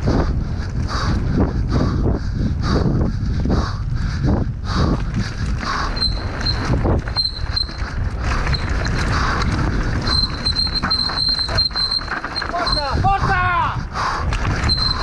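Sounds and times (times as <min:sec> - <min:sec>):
wind rushing on camera: 0:00.0 - 0:15.0
mountain bike rattling on dirt trail: 0:04.7 - 0:15.0.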